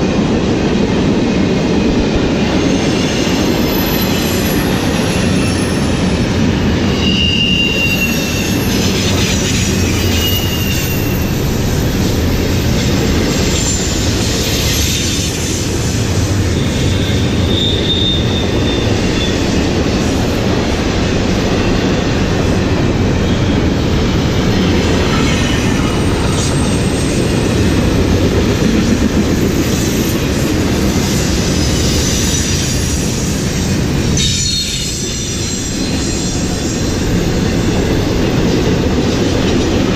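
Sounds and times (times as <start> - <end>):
train wheels rumbling on rails: 0.0 - 39.9
high-pitched wheel squeals: 6.8 - 11.5, 16.5 - 19.5, 34.2 - 37.0.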